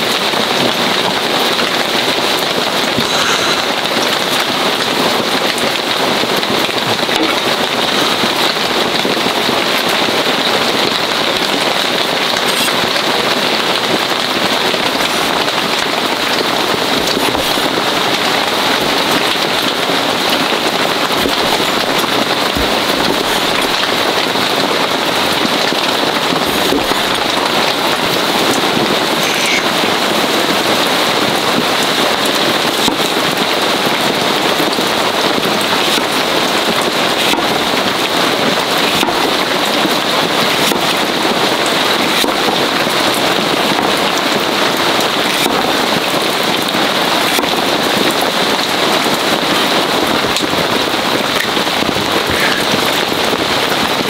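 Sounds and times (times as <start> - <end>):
heavy rain on a tarp: 0.0 - 54.0.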